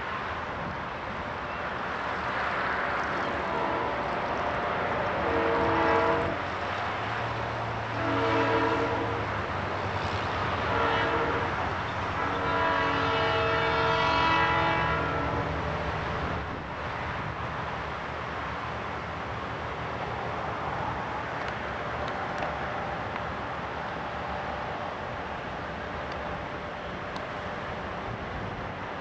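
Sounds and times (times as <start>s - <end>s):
locomotive engine drone: 0.0s - 29.0s
locomotive air horn blasts: 3.2s - 6.6s, 7.9s - 9.4s, 10.0s - 16.4s.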